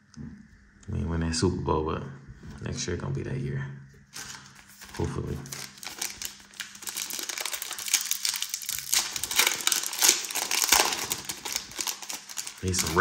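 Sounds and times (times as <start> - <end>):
foil wrapper tearing and crinkling: 4.1 - 13.0.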